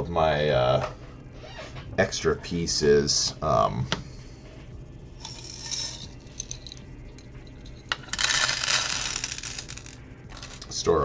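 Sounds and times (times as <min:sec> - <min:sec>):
plastic bricks clattering: 0:08.0 - 0:10.6.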